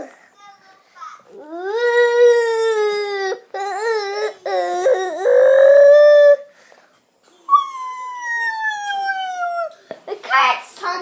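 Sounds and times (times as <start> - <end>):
high vocal wailing: 1.6 - 6.4, 7.5 - 9.8.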